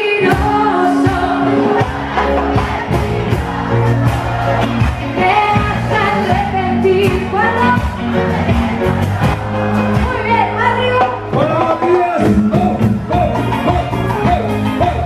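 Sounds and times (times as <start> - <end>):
woman singing into a microphone: 0.0 - 2.2, 5.2 - 8.1
live band playing: 0.0 - 15.0
drum beat: 0.2 - 10.4, 11.0 - 15.0.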